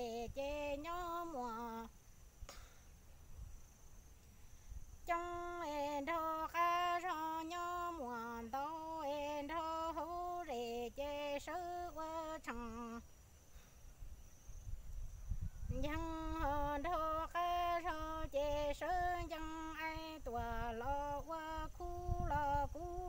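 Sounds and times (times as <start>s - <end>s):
unaccompanied voice singing: 0.0s - 2.0s, 5.0s - 13.1s, 15.7s - 23.0s.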